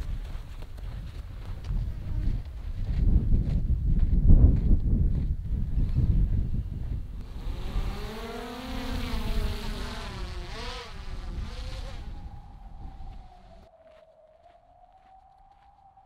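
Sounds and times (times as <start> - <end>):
wind rumbling on microphone: 0.0 - 16.0
drone propellers buzzing: 7.2 - 13.7.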